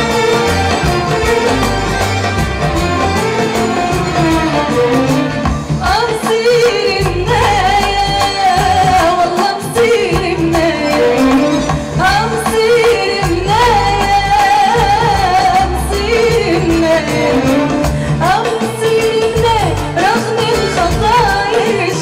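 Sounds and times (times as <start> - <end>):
band accompaniment: 0.0 - 22.0
woman singing into a microphone: 5.8 - 22.0.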